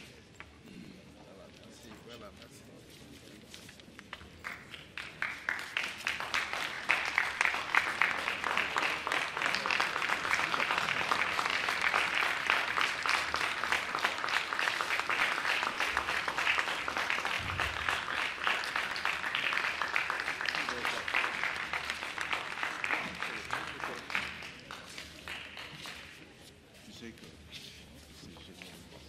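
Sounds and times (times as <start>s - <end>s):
crowd applauding: 4.4s - 26.3s.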